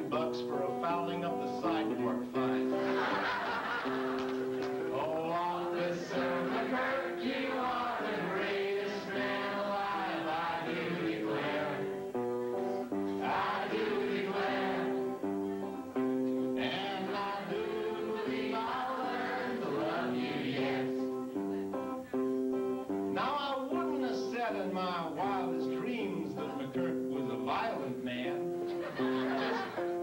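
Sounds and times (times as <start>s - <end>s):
man singing: 0.0s - 3.0s, 4.8s - 11.4s, 16.6s - 20.2s, 23.1s - 28.5s
guitar chords: 0.0s - 30.0s.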